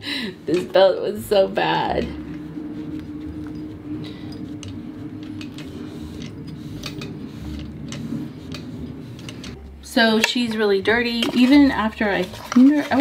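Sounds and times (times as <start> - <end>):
steady low hum: 0.0 - 13.0
cloth wiping metal pulley: 0.5 - 9.6.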